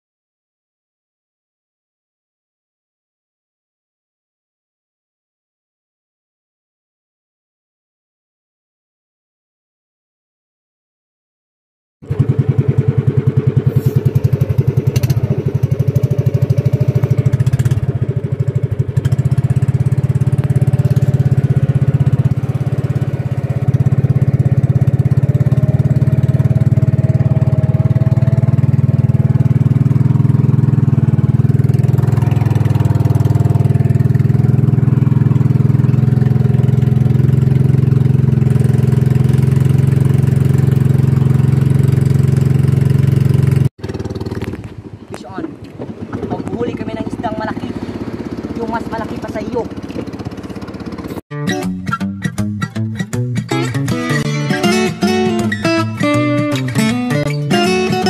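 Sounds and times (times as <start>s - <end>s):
boat engine chugging: 12.0s - 51.2s.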